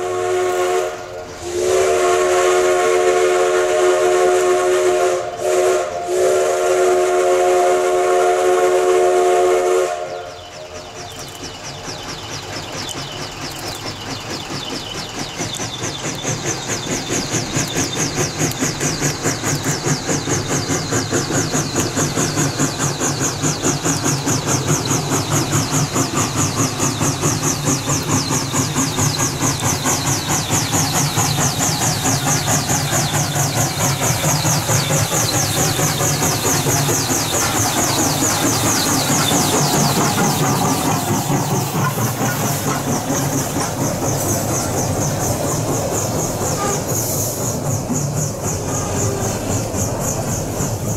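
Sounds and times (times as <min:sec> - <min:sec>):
steam locomotive chime whistle: 0:00.0 - 0:11.3, 0:46.2 - 0:47.5, 0:48.5 - 0:50.8
locomotive exhaust chuffing: 0:00.0 - 0:50.9.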